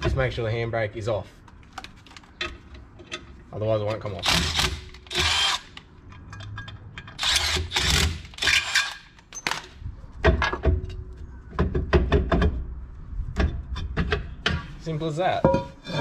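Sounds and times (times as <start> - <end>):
metallic knocks and clunks: 9.4 - 12.7, 13.3 - 14.8, 15.4 - 16.0.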